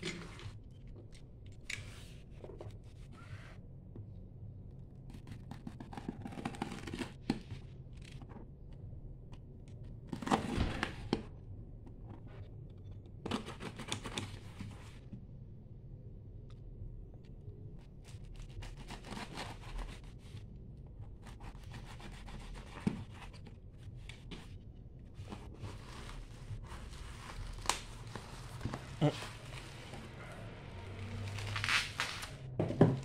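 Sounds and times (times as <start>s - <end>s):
knife slitting packing tape: 31.2s - 32.4s.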